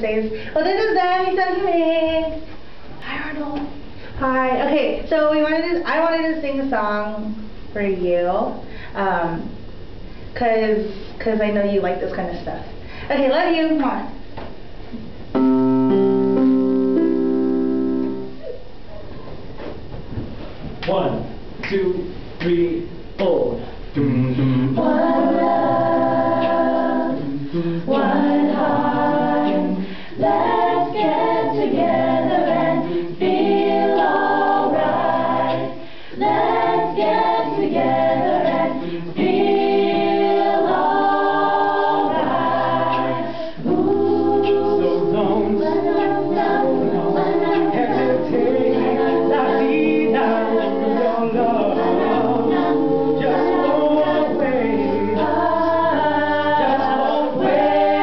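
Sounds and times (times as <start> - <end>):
group singing in harmony: 15.4 - 18.4, 23.9 - 58.0.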